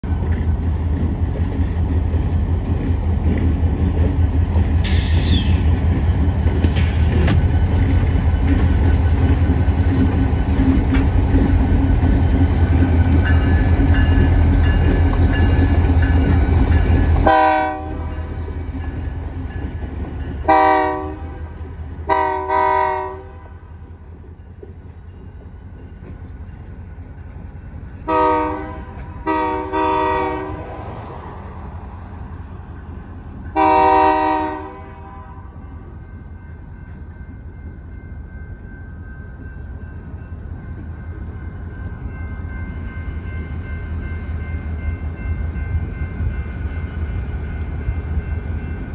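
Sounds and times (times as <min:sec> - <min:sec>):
diesel locomotive engines rumbling: 0:00.0 - 0:48.9
locomotive horn blasts: 0:17.2 - 0:18.3, 0:20.5 - 0:21.4, 0:22.1 - 0:23.6, 0:28.1 - 0:30.7, 0:33.6 - 0:35.6.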